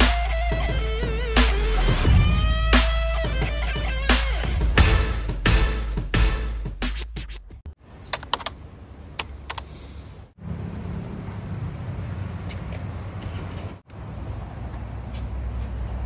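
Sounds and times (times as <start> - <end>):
intro music: 0.0 - 7.6
low rumble of vehicle noise: 7.8 - 16.0.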